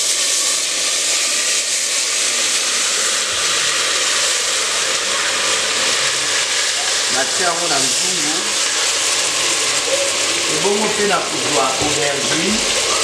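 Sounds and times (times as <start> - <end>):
tomatoes sizzling in hot oil: 0.0 - 13.0.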